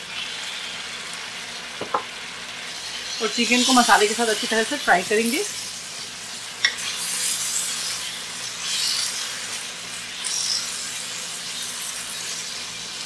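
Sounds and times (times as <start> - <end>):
chicken sizzling in hot oil: 0.0 - 13.0
spatula stirring and scraping: 5.4 - 13.0.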